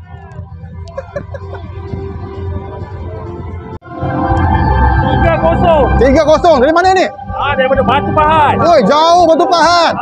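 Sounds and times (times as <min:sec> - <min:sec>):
music over public-address system: 0:00.0 - 0:10.0.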